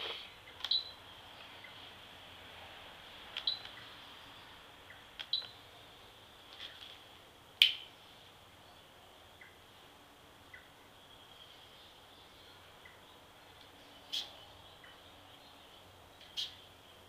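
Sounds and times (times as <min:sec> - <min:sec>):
faint high hiss: 0:00.0 - 0:17.0
bird chirps: 0:00.2 - 0:01.9, 0:03.4 - 0:05.6, 0:08.6 - 0:09.6, 0:10.5 - 0:17.0.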